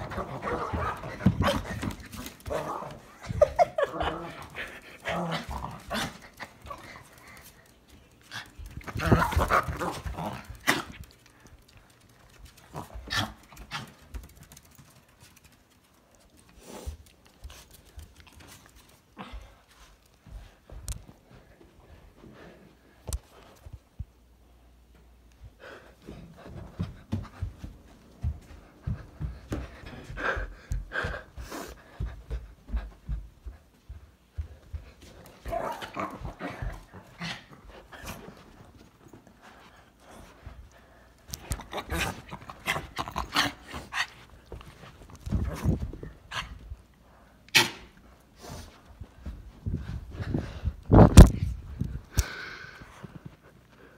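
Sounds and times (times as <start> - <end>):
panting breaths: 25.4 - 35.3.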